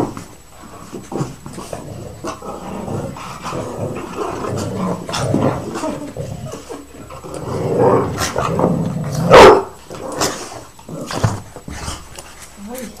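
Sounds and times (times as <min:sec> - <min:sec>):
dogs growling: 0:00.0 - 0:12.3
dog barking: 0:09.3 - 0:09.8.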